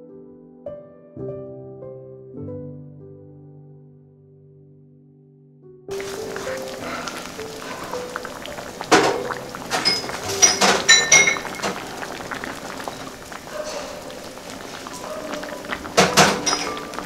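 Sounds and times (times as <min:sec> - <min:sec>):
broth bubbling in a pot: 0:05.9 - 0:17.0
tableware clinking: 0:06.0 - 0:17.0.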